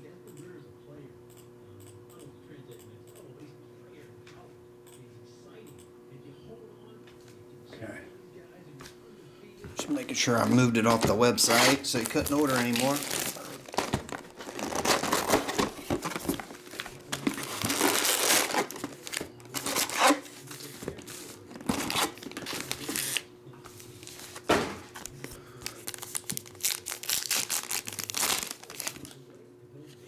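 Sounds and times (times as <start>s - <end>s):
plastic wrapping crinkling: 10.2s - 23.2s, 23.8s - 29.2s
card pack wrapper tearing: 10.4s - 24.4s, 25.0s - 29.2s.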